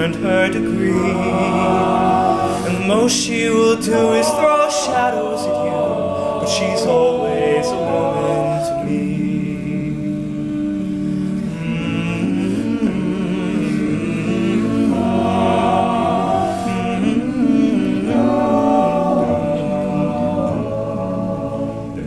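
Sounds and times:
male group singing in harmony: 0.0s - 22.0s.

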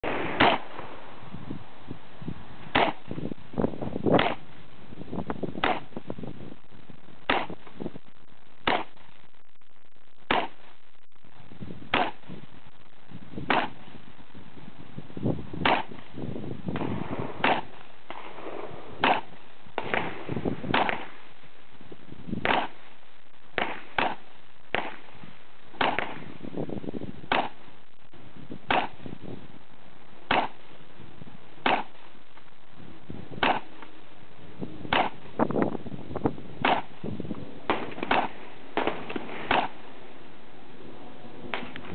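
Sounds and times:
gunshots with echo: 0.0s - 0.9s, 16.8s - 21.2s, 25.8s - 26.3s.

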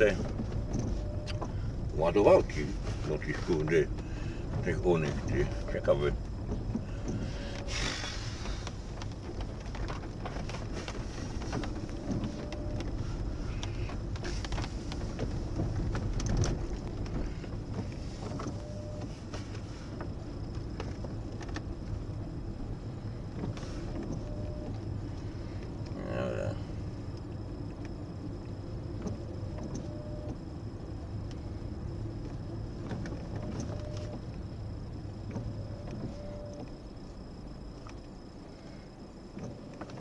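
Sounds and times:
clicks and knocks from car: 0.0s - 1.6s, 2.5s - 22.2s, 32.2s - 34.5s, 35.2s - 38.2s, 39.3s - 40.0s
car engine and tyres rumbling: 0.0s - 40.0s.

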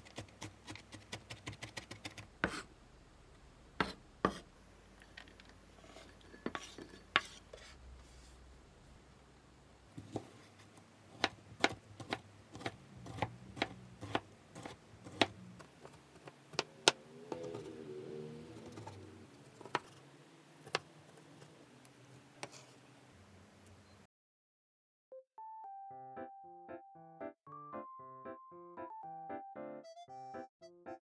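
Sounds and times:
knife chopping on wooden board: 0.0s - 2.7s, 3.8s - 4.5s, 11.2s - 17.0s.

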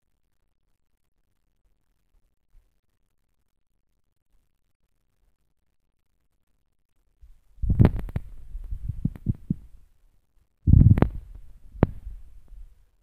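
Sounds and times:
phone microphone handling noise: 7.6s - 9.8s, 10.7s - 12.7s.

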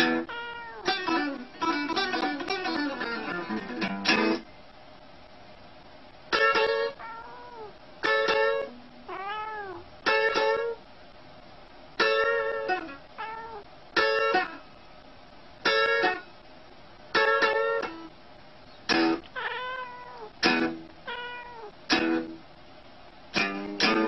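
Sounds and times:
guitar chords strummed: 0.0s - 4.5s, 6.3s - 7.0s, 8.0s - 8.8s, 10.0s - 10.8s, 12.0s - 13.0s, 14.0s - 14.6s, 15.6s - 16.3s, 17.1s - 18.1s, 18.9s - 19.3s, 20.4s - 21.0s, 21.9s - 22.4s, 23.3s - 24.0s
cat meowing: 0.2s - 1.2s, 6.9s - 7.8s, 9.1s - 9.8s, 12.8s - 13.7s, 19.2s - 20.4s, 21.0s - 21.8s.

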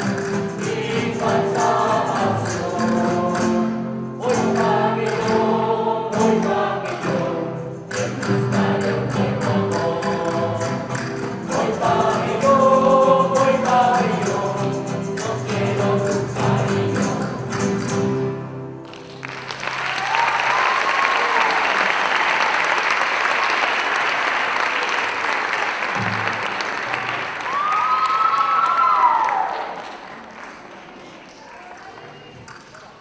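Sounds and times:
mixed choir singing: 0.0s - 17.9s
acoustic guitars strumming: 0.0s - 19.6s
audience applauding: 18.8s - 33.0s.

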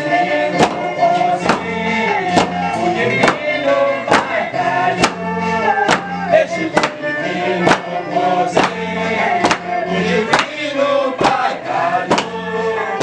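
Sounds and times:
people singing a hymn: 0.0s - 13.0s
wooden mallets pounding: 0.6s - 1.7s, 2.3s - 3.5s, 4.1s - 4.4s, 5.0s - 7.9s, 8.5s - 8.8s, 9.4s - 10.6s, 11.2s - 12.4s.

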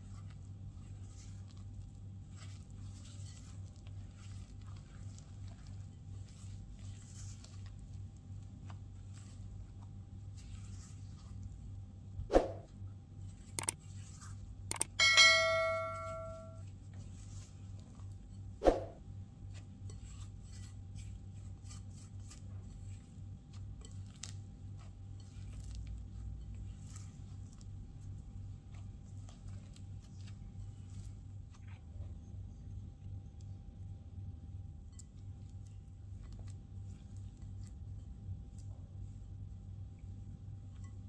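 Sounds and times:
spatula scraping dough in bowl: 0.0s - 11.7s, 16.9s - 32.0s
glass bowl ringing: 14.9s - 16.6s
spatula knocking glass bowl: 15.0s - 16.6s.

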